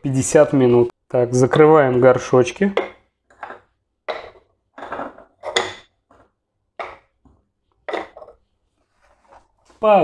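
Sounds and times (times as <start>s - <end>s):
ceramic lids clacking on pots: 2.7s - 6.0s, 7.8s - 8.4s.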